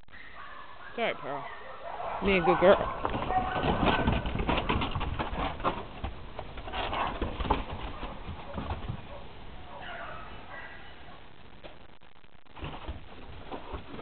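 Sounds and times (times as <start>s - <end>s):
dog claws clattering on wooden deck: 2.6s - 9.2s.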